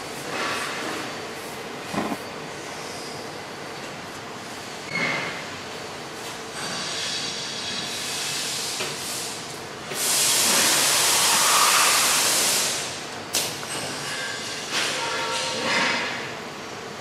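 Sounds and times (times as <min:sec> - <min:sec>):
machine hissing: 0:06.7 - 0:13.0.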